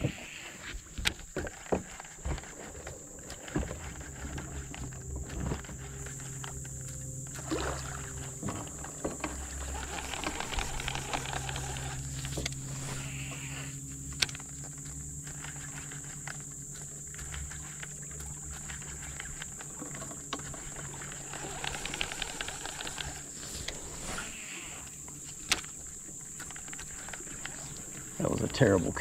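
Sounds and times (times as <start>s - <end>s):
high insect drone: 0.0s - 29.0s
low steady hum: 0.0s - 29.0s
small ticks: 0.1s - 29.0s.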